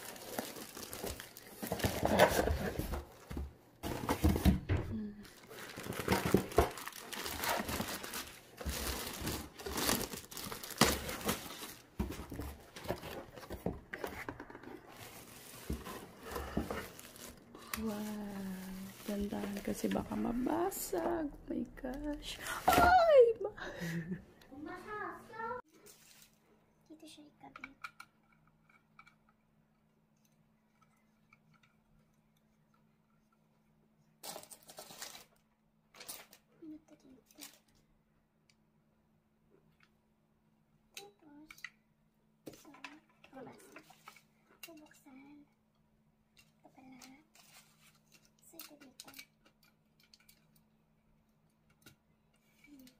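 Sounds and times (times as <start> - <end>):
plastic bag crinkling: 0.0 - 2.8, 5.1 - 12.5, 14.8 - 20.9.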